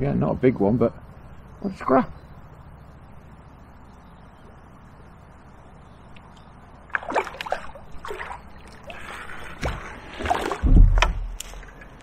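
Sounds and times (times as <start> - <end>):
heavy low thump: 10.6 - 11.4.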